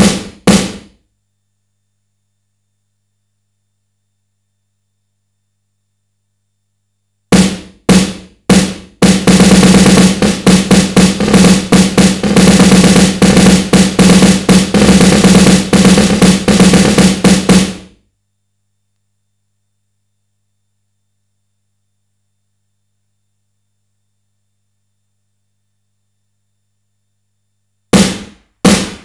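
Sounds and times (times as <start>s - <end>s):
electronic snare drum hits: 0.0s - 1.0s, 7.3s - 18.0s, 27.9s - 29.0s.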